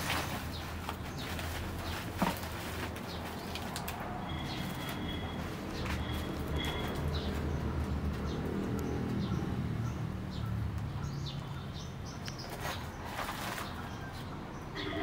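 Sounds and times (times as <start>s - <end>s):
dog rustling paper sacks: 0.0s - 3.7s
small birds chirping: 0.0s - 15.0s
low cooing: 14.8s - 15.0s.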